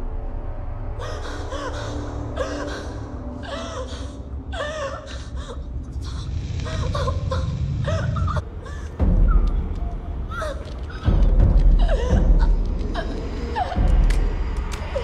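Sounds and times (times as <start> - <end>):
low rumbling music drone: 0.0 - 15.0
woman gasping and whimpering: 1.0 - 9.0.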